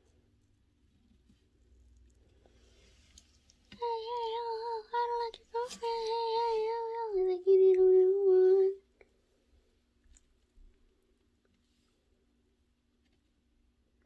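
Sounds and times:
girl singing long notes: 3.7s - 8.9s.

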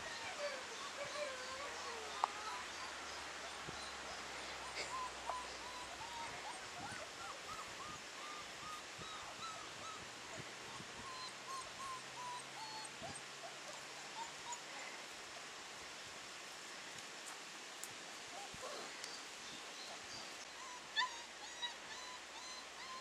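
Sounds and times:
puppies whimpering: 0.0s - 14.9s, 19.8s - 23.0s.

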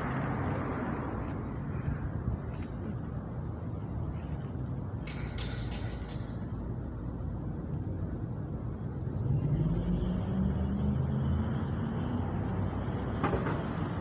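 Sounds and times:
road traffic rumble: 0.0s - 14.0s
vehicle engine hum: 0.0s - 14.0s.

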